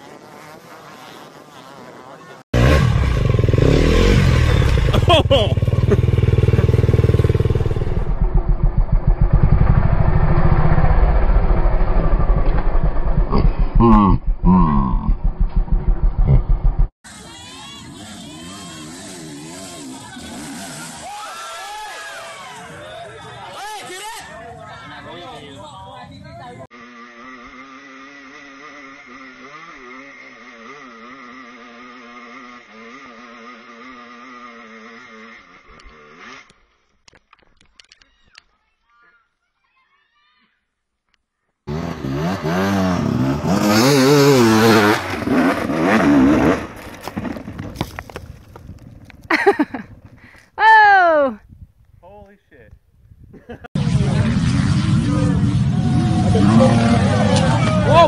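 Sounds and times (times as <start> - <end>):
dirt bike engine revving: 0.0 - 21.1, 26.7 - 36.6, 41.7 - 47.9, 53.8 - 58.0
dirt bike engine chugging: 2.8 - 16.9.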